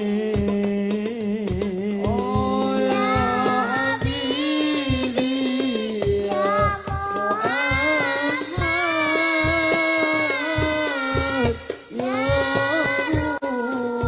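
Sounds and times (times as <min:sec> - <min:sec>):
frame drums beating: 0:00.0 - 0:14.0
person singing long wavering notes: 0:02.1 - 0:14.0.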